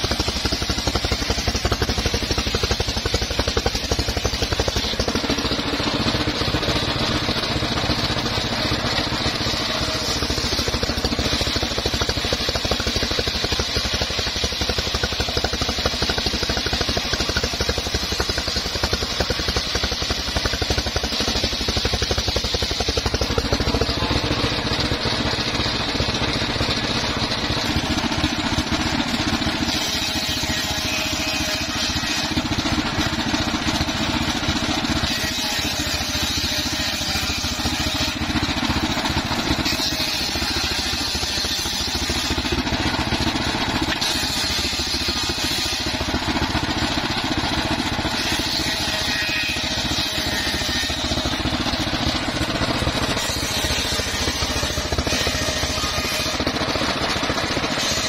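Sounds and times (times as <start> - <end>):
circular sawmill cutting wood: 0.0 - 58.0.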